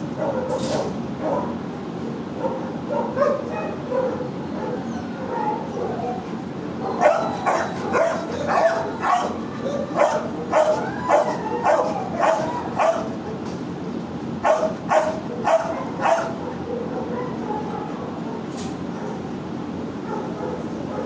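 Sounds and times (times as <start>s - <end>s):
dog barking: 0.2s - 1.6s, 2.4s - 6.2s, 6.8s - 13.2s, 14.4s - 18.0s, 20.0s - 21.0s.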